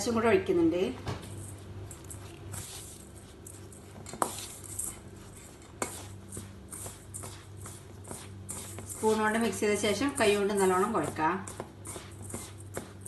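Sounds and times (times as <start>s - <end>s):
soft scrape of rice mixed by hand: 1.3s - 13.0s.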